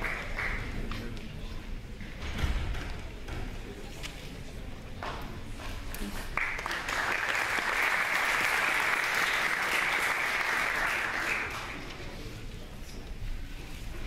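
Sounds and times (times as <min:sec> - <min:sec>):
audience applause: 0:00.0 - 0:00.8, 0:06.1 - 0:11.9.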